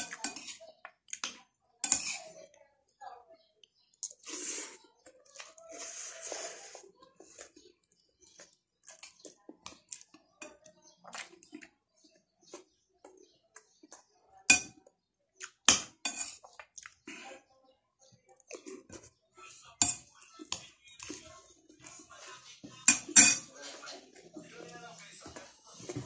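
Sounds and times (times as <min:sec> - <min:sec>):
cutlery clinking on plate: 0:00.0 - 0:00.6, 0:01.2 - 0:02.3, 0:15.7 - 0:16.4, 0:22.8 - 0:23.9
chewing: 0:03.6 - 0:14.2, 0:16.3 - 0:17.2, 0:18.3 - 0:22.9.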